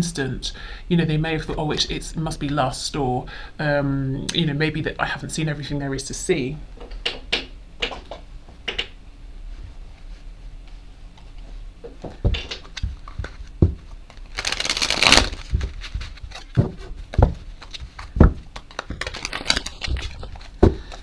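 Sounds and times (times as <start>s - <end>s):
cards knocking: 12.2s - 21.0s
cards fluttering: 14.1s - 16.5s, 17.6s - 21.0s.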